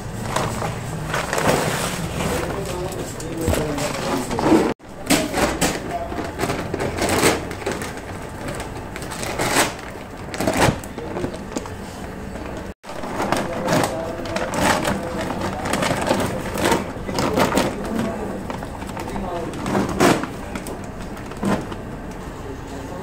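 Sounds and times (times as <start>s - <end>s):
wet grinder clattering and rumbling: 0.0s - 22.2s.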